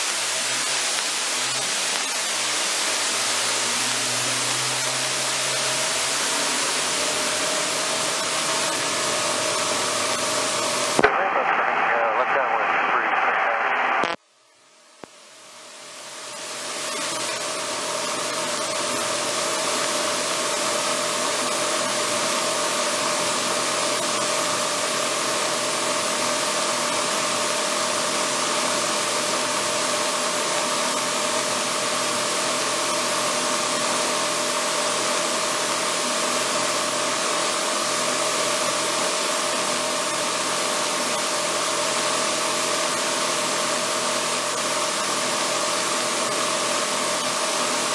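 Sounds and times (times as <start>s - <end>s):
aircraft engine drone: 0.0s - 14.2s.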